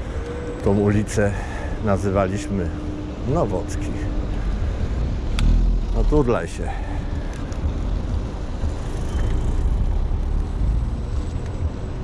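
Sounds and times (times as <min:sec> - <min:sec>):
car traffic: 0:00.0 - 0:12.0
wind rumble on microphone: 0:06.7 - 0:12.0.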